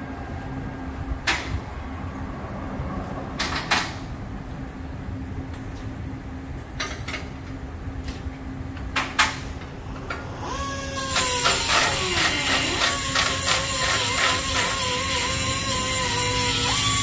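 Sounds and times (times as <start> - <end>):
low shop hum: 0.0 - 17.0
air tool rattling and whining: 9.2 - 17.0.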